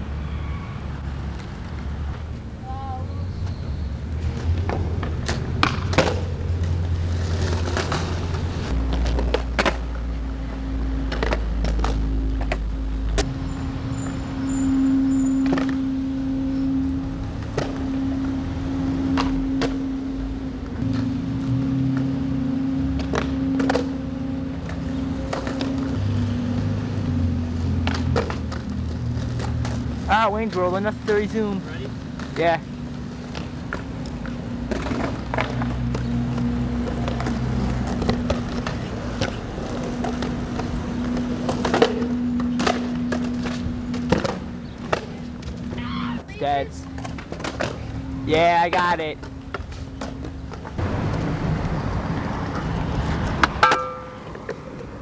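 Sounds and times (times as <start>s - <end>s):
skateboards clacking on concrete: 4.2s - 12.7s, 15.4s - 15.9s, 22.9s - 24.0s, 27.6s - 45.8s, 46.4s - 51.3s, 52.2s - 55.0s
steady low hum: 5.6s - 52.0s.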